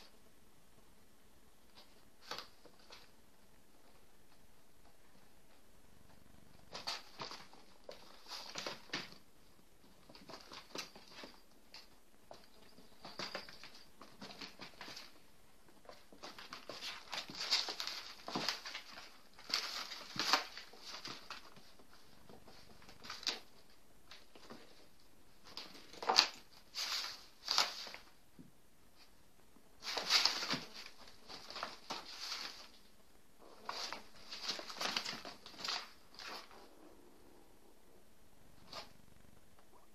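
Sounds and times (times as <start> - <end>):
kittens scrabbling on cardboard: 6.6 - 28.2, 29.8 - 32.9, 33.5 - 36.6
paper rustling: 29.8 - 32.8.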